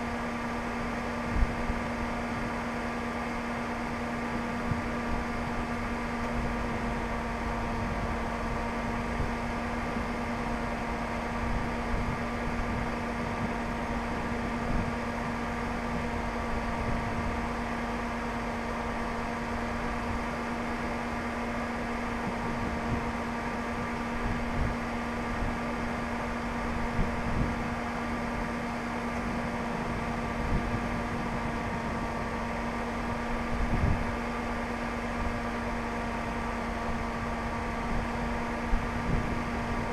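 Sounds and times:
wind gusting on microphone: 0:22.1 - 0:35.4, 0:36.8 - 0:39.9.

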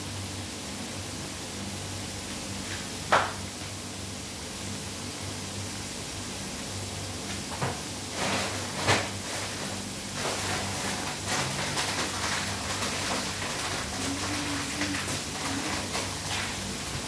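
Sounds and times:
potatoes sizzling in hot oil: 0:07.4 - 0:17.0.

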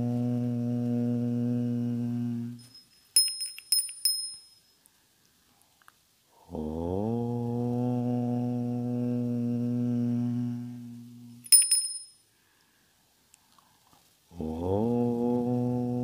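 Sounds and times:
man chanting om: 0:00.0 - 0:02.6, 0:06.4 - 0:11.4, 0:14.3 - 0:16.0
bell ringing: 0:02.6 - 0:04.7, 0:11.5 - 0:12.2.

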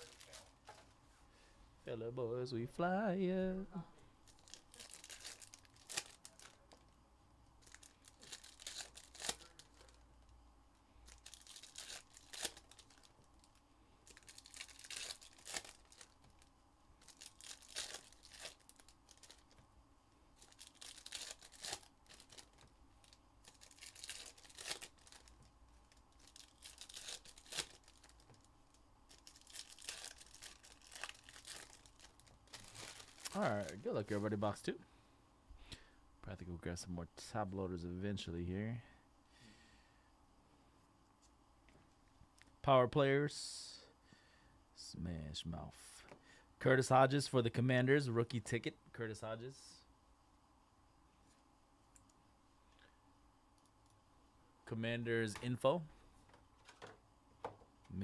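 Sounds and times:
plastic wrapping tearing and crinkling: 0:00.0 - 0:00.6, 0:04.2 - 0:06.8, 0:07.6 - 0:10.0, 0:11.0 - 0:19.6, 0:20.4 - 0:28.5, 0:29.1 - 0:33.9.

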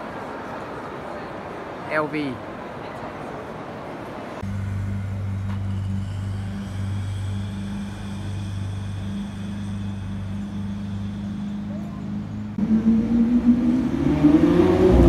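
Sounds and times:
car engine idling: 0:04.4 - 0:13.5.

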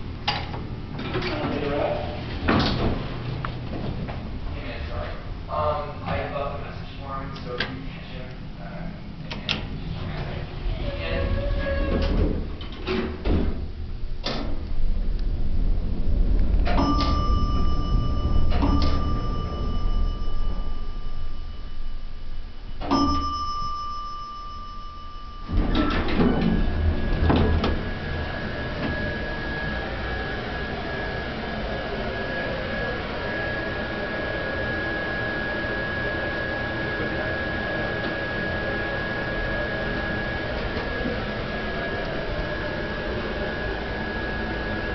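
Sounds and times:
blower fan whirring: 0:00.0 - 0:44.9
elevator car humming: 0:08.2 - 0:44.9
elevator doors sliding open: 0:09.6 - 0:22.0, 0:22.6 - 0:35.0
elevator chime: 0:16.6 - 0:44.9.

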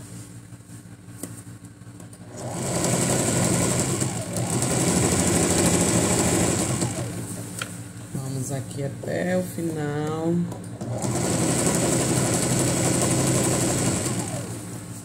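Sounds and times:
sewing machine stitching: 0:02.2 - 0:07.4, 0:10.7 - 0:14.8.

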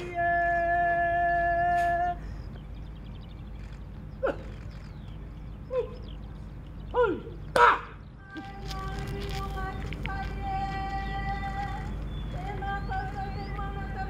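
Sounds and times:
person calling out: 0:05.7 - 0:06.0, 0:06.9 - 0:08.0.

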